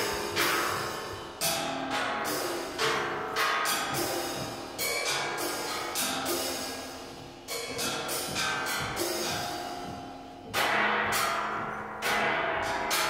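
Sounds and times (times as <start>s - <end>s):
ringing drum strikes: 0.0s - 13.0s.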